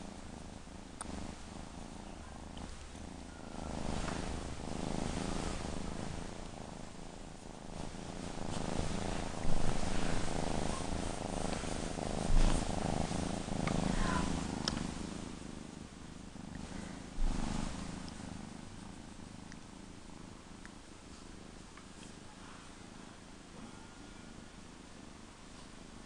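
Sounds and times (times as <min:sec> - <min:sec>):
kitten purring: 0:00.0 - 0:26.0
low thumps: 0:07.8 - 0:15.0, 0:17.1 - 0:18.0.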